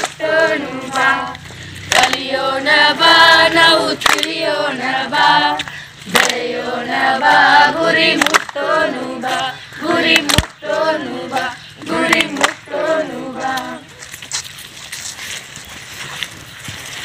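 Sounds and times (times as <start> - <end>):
group of young voices singing: 0.0 - 13.9.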